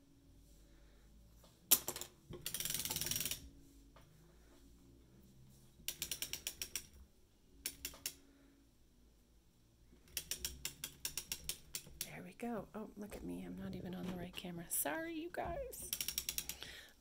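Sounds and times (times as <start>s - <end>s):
sock knitting machine clicking: 2.4s - 3.4s, 5.8s - 7.0s, 7.6s - 8.2s, 10.0s - 12.1s, 15.9s - 16.6s.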